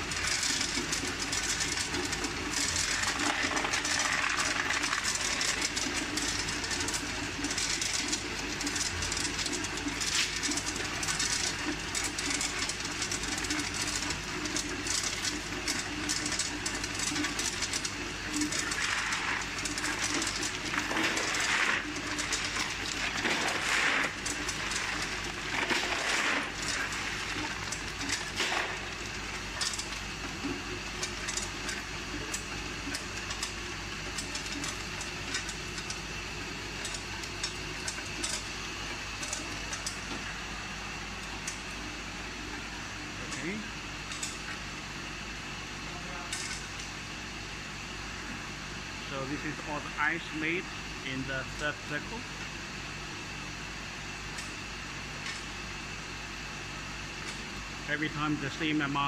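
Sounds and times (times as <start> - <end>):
ice clattering down metal chute: 0.0 - 30.0
machine humming: 0.0 - 59.0
plastic scoop raking ice: 18.4 - 29.0.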